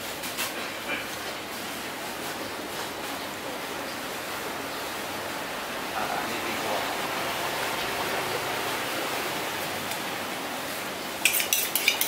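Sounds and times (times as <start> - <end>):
knife scraping on honing steel: 11.2 - 12.0.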